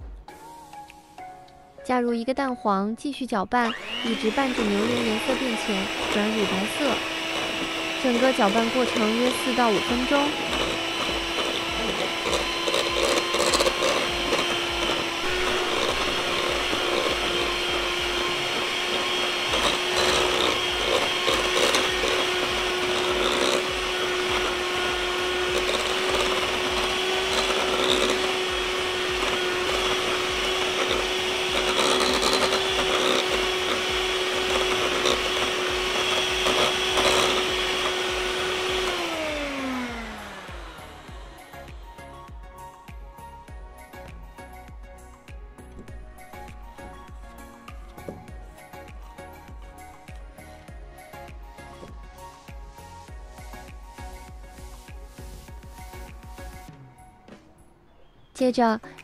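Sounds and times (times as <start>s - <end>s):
electric hand mixer running: 3.6s - 44.8s, 45.8s - 56.7s.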